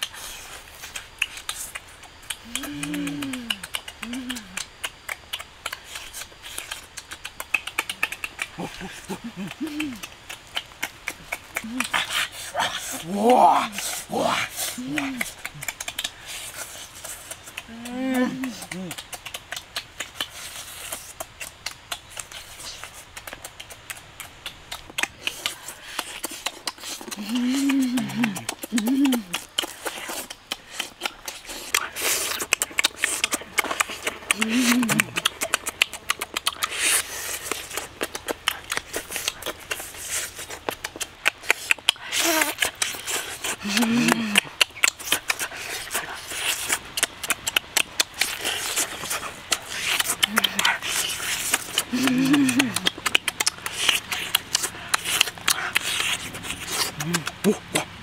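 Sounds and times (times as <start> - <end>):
wet chewing and mouth smacking: 0.0 - 58.0
person humming: 2.4 - 4.7, 8.0 - 10.2, 11.6 - 12.0, 12.6 - 15.8, 17.6 - 19.1, 27.0 - 29.5, 33.2 - 35.4, 42.2 - 42.7, 43.6 - 44.6, 50.1 - 50.8, 51.7 - 53.1, 56.8 - 58.0
meat tearing: 25.0 - 57.5.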